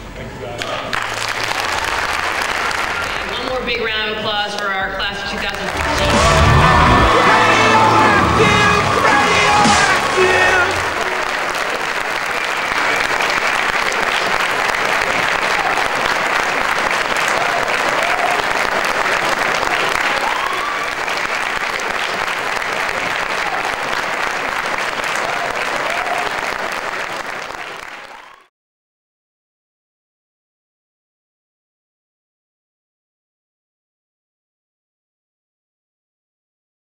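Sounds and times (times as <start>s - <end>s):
audience applauding: 0.6s - 3.7s, 5.0s - 28.5s.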